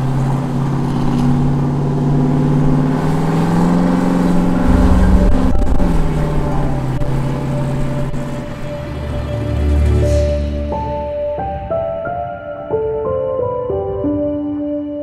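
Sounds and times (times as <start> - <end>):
pickup truck engine accelerating: 0.0 - 10.7.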